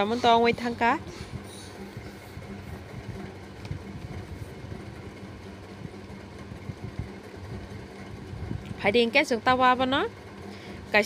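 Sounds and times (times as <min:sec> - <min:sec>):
faint engine-like drone: 0:00.0 - 0:11.0
steady low hum: 0:00.0 - 0:11.0.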